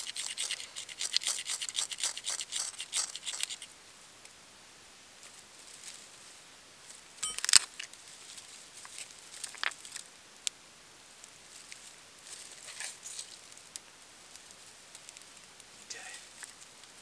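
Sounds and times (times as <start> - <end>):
sharp ticks: 0.0 - 3.7
faint fire crackles: 3.6 - 17.0
dry twigs rustling and snapping: 7.4 - 10.6, 11.2 - 17.0.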